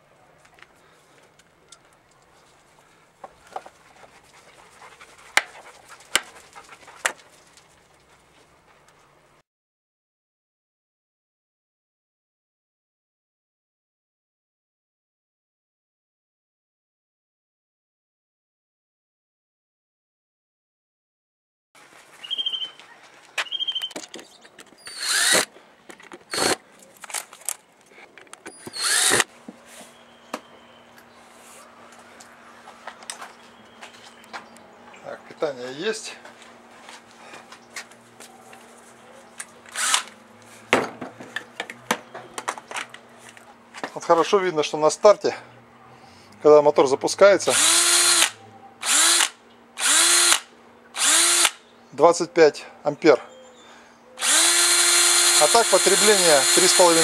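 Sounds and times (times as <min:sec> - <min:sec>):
rustling handling noise: 0:00.3 - 0:09.2, 0:21.8 - 0:24.8, 0:25.5 - 0:28.7, 0:31.0 - 0:44.4
cordless drill bursts: 0:24.8 - 0:25.5, 0:26.3 - 0:26.6, 0:28.5 - 0:29.3, 0:39.7 - 0:40.1, 0:47.5 - 0:51.6, 0:54.2 - 0:57.0.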